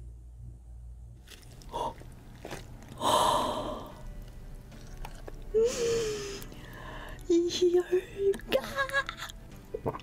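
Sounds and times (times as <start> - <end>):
chewing and mouth noises: 1.2 - 5.6, 8.3 - 10.0.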